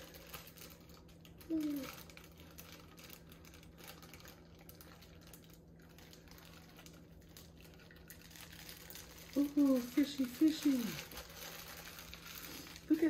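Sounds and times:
water trickling into bowl: 2.1 - 12.4.

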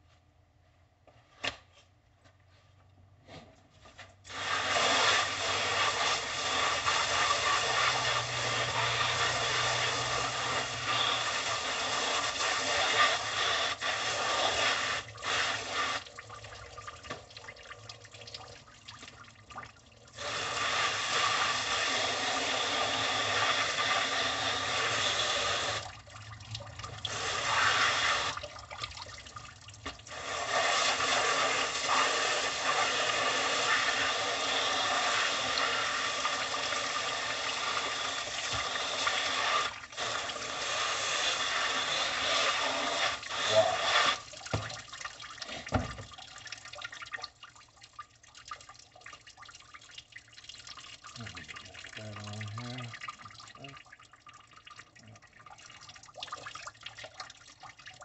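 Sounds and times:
hose water spraying on plastic: 4.0 - 17.3, 18.9 - 28.6, 29.8 - 46.3.

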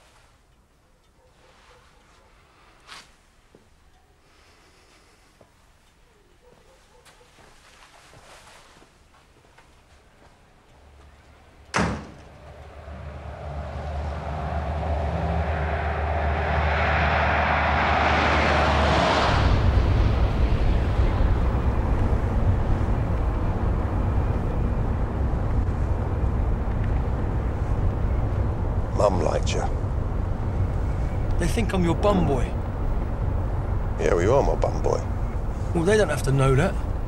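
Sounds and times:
car driving up: 11.0 - 37.0
door slamming: 11.7 - 12.4
car engine rumble from inside: 12.3 - 17.6, 18.9 - 37.0.

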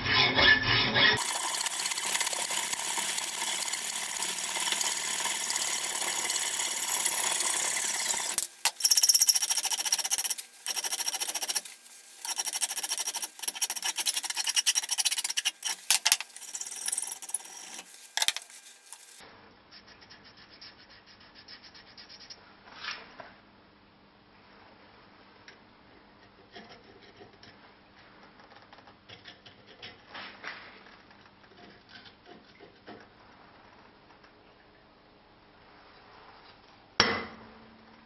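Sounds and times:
hacksaw cutting steel: 0.1 - 19.2
file strokes on steel: 9.2 - 19.2.

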